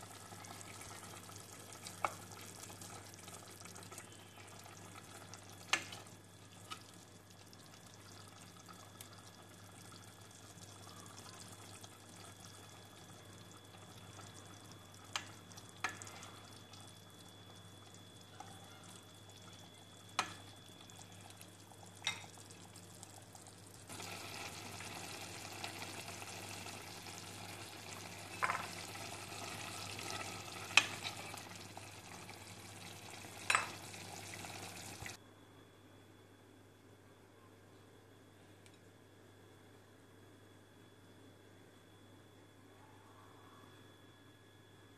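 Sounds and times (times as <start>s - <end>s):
soup bubbling in pot: 0.0s - 35.2s
low steady hum: 0.0s - 44.9s.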